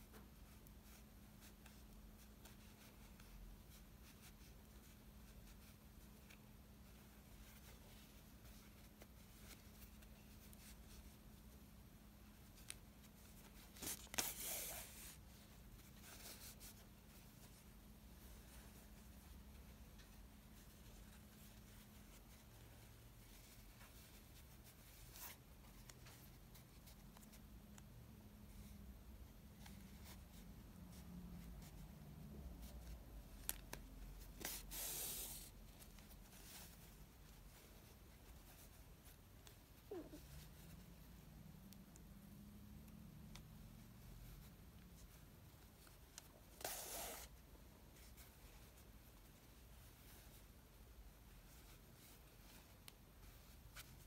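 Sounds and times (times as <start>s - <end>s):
fabric handling during sewing: 0.0s - 27.5s, 43.3s - 54.0s.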